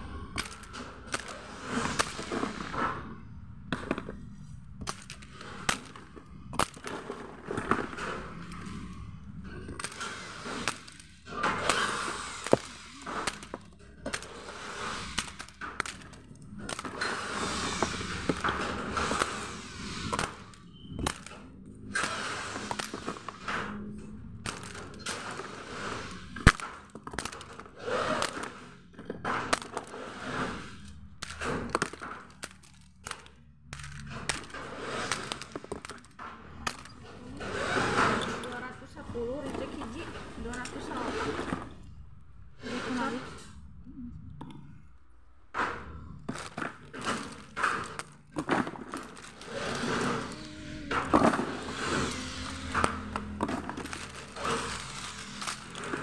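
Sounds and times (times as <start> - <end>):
packaging rustling and crinkling: 3.7 - 28.7, 29.5 - 38.7, 46.2 - 56.0
knocks and clatter: 44.4 - 56.0.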